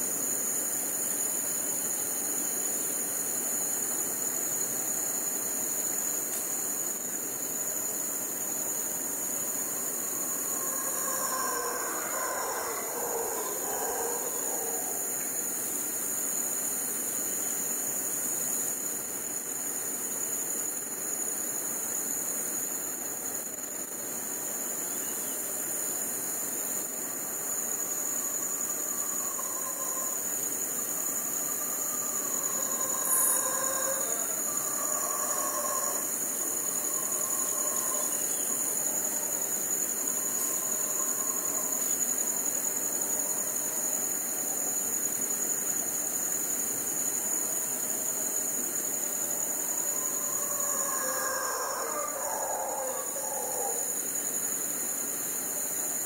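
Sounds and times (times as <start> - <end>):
crickets trilling: 0.0 - 56.0
distant howler monkeys calling: 8.8 - 15.4, 27.3 - 43.8, 49.4 - 54.1.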